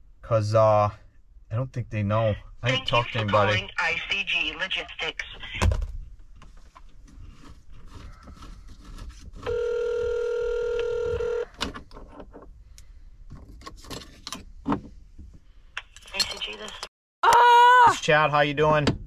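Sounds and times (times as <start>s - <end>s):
telephone ringing tone: 9.5s - 11.5s.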